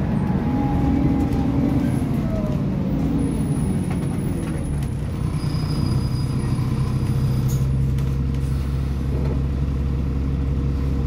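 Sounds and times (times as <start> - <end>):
bus diesel engine idling: 0.0 - 11.0.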